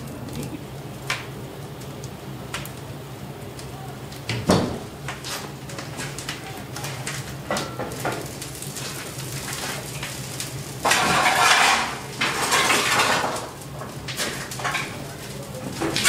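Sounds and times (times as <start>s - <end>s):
steady low hum: 0.0s - 15.8s
shovel scraping coal: 8.7s - 15.2s.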